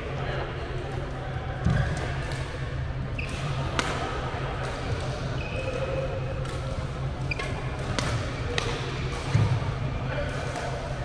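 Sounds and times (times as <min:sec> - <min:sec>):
rackets hitting shuttlecock: 0:03.2 - 0:05.2, 0:06.4 - 0:09.8
shoes squeaking on court: 0:07.2 - 0:08.1.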